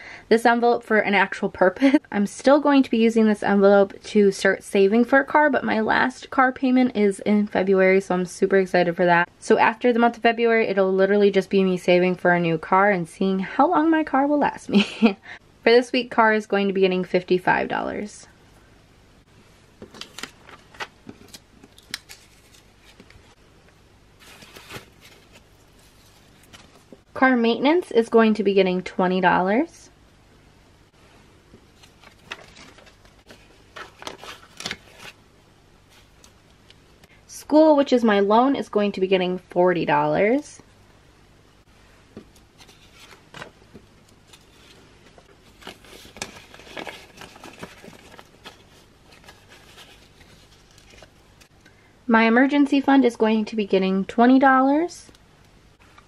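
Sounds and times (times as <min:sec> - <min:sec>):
paper rustling: 0:19.8 - 0:23.3, 0:24.2 - 0:27.0, 0:31.7 - 0:35.2, 0:42.2 - 0:51.5
banknotes crackling: 0:19.9 - 0:23.3, 0:31.7 - 0:35.2, 0:42.4 - 0:51.6.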